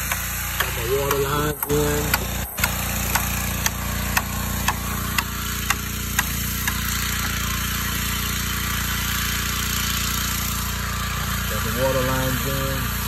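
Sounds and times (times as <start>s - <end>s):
pressure washer engine running: 0.0s - 13.0s.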